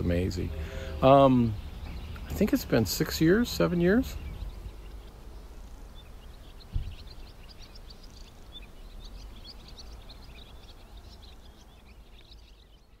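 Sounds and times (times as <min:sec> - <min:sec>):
low outdoor rumble: 0:00.0 - 0:13.0
small birds chirping: 0:00.0 - 0:13.0
low thump: 0:06.7 - 0:07.1.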